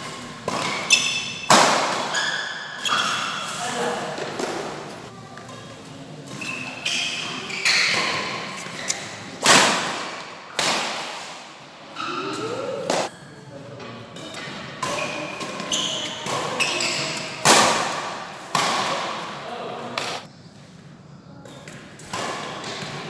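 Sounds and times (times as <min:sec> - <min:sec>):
rackets hitting shuttlecock: 0:00.1 - 0:03.6, 0:06.3 - 0:11.6, 0:14.1 - 0:20.3, 0:21.6 - 0:23.0.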